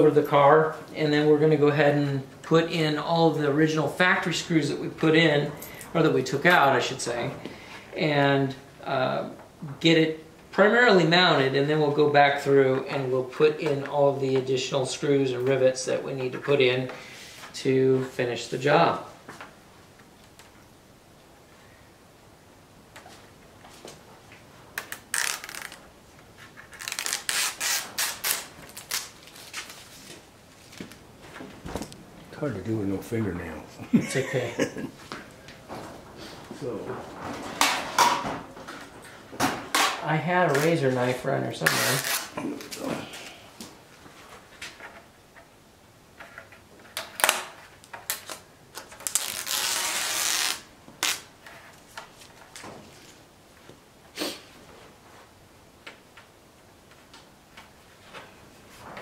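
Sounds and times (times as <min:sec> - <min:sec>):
tape liner crackling and rustling: 0:24.8 - 0:31.0, 0:41.6 - 0:42.8, 0:46.8 - 0:53.2.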